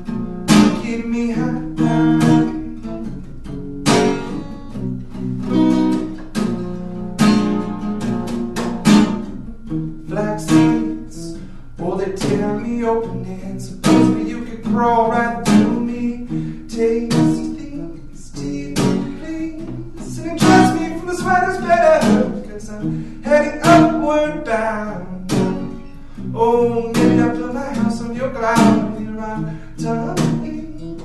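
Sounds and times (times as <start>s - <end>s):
acoustic guitar strumming: 0.0s - 31.0s.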